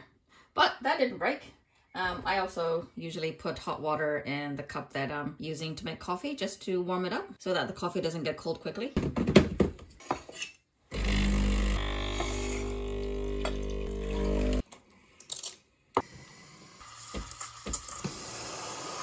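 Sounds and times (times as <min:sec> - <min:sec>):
espresso machine pump drone: 0:11.0 - 0:14.6.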